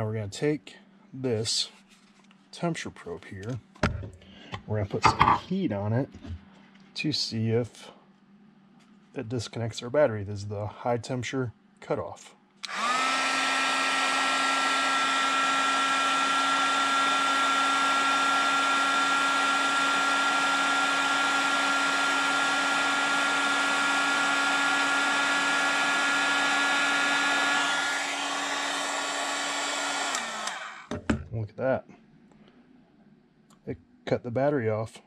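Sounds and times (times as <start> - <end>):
heat gun fan whine: 3.0 - 5.4, 11.9 - 31.2.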